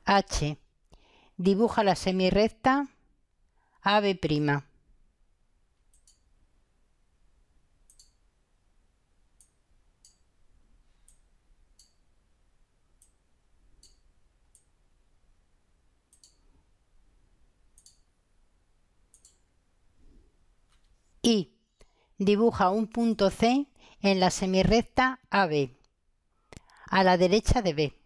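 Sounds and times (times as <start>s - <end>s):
computer mouse clicks: 5.9s - 6.3s, 7.8s - 8.2s, 11.0s - 12.0s, 13.8s - 14.7s, 16.1s - 16.5s, 17.7s - 18.1s, 19.1s - 19.5s.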